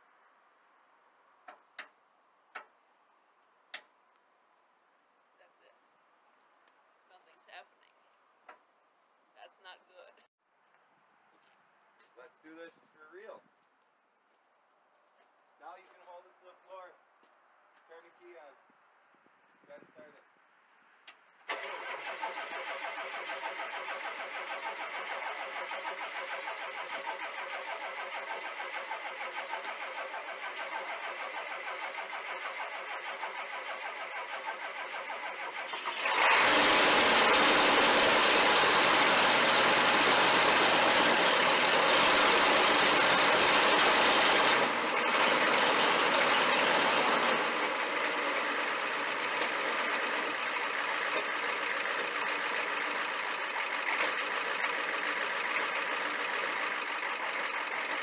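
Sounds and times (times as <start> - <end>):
starter cranking engine: 21.4 - 58.0
diesel engine running loud: 21.6 - 58.0.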